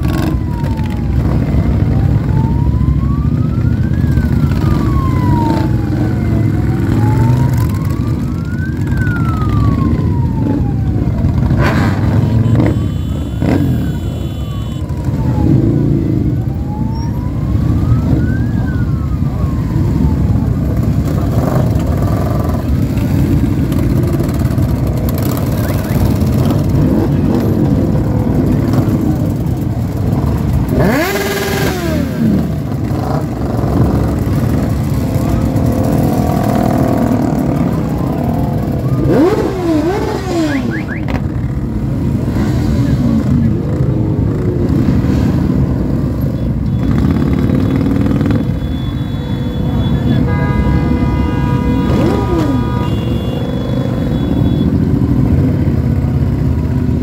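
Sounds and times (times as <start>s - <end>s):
siren wailing: 0.0s - 42.1s, 45.7s - 50.3s, 51.8s - 56.2s
motorcycle engines passing: 0.0s - 57.0s
motorcycle revving: 0.0s - 57.0s.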